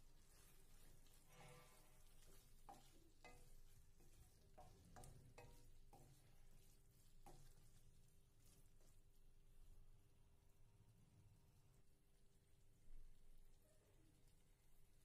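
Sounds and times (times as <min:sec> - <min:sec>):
wooden spatula scraping pan: 0:00.0 - 0:09.0.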